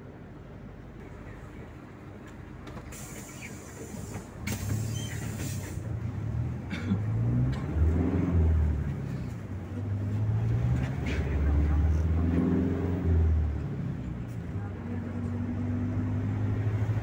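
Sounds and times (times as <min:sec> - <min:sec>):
diesel bus engine accelerating: 0:00.0 - 0:17.0
sharp hiss: 0:02.9 - 0:05.8.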